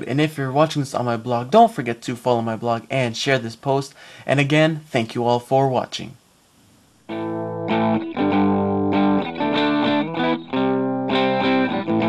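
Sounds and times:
distorted electric guitar chords: 7.1s - 12.0s.

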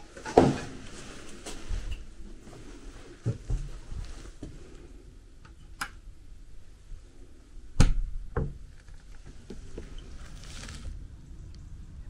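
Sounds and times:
scraping rustle: 8.7s - 11.0s.

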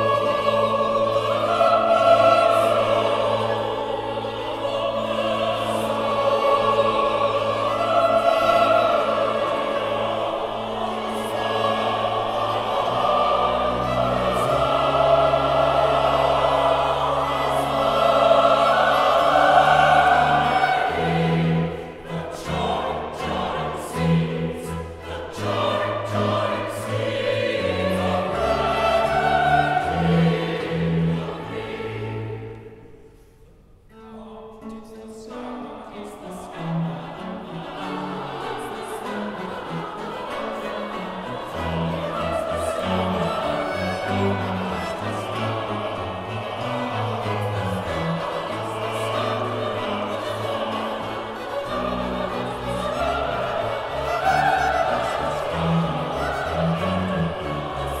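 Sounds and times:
choir singing: 0.0s - 58.0s
string orchestra: 0.0s - 58.0s.

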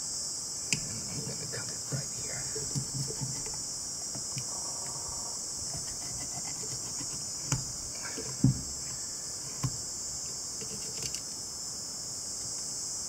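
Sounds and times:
steady high-pitched hiss: 0.0s - 13.0s.

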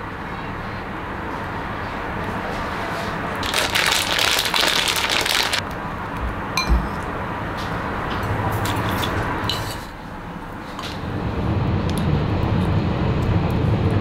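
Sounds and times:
steady background noise: 0.0s - 14.0s
crackling rustling seasoning: 3.4s - 5.6s.

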